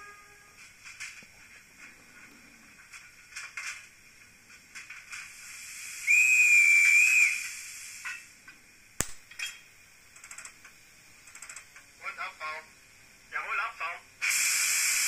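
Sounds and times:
model steam whistle: 0.0 - 0.6, 5.8 - 8.0
faint steam hiss: 0.0 - 15.0.

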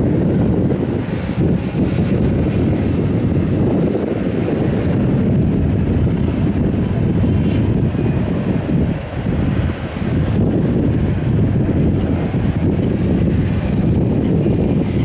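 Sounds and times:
jet engine rumble and whine: 0.0 - 15.0
wind buffeting microphone: 0.0 - 15.0.

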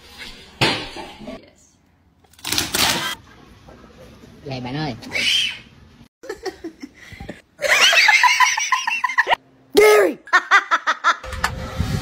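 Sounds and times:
person laughing hard: 10.3 - 11.2.

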